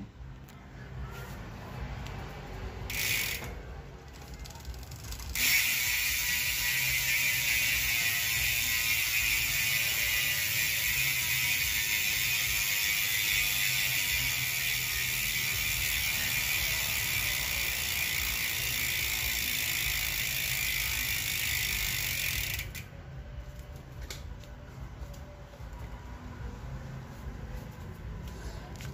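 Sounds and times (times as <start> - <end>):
bicycle freehub ratcheting buzz: 2.8 - 22.9.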